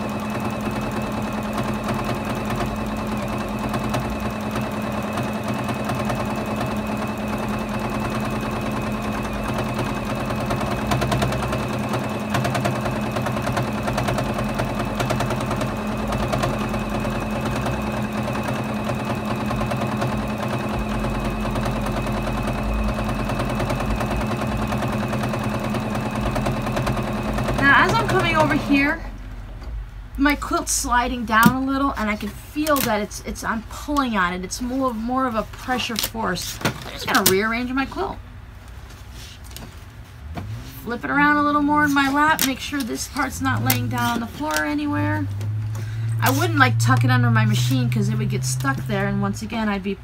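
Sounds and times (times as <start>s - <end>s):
sewing machine stitching: 0.0s - 29.1s, 40.5s - 45.5s.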